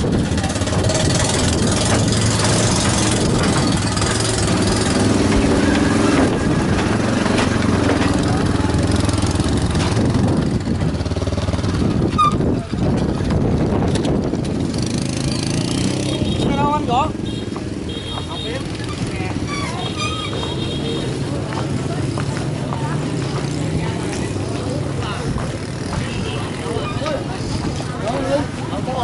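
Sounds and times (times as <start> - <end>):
small motorbike engines idling: 0.0 - 13.3
people talking: 7.8 - 9.2, 18.0 - 29.0.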